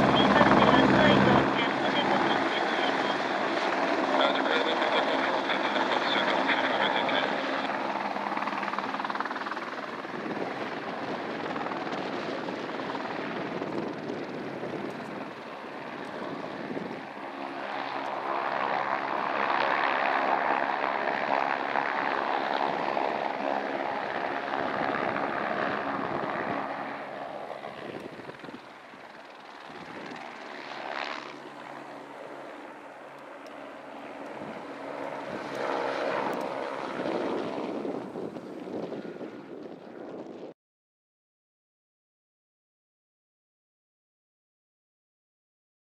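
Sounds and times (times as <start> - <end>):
helicopter flying low: 0.0 - 40.6.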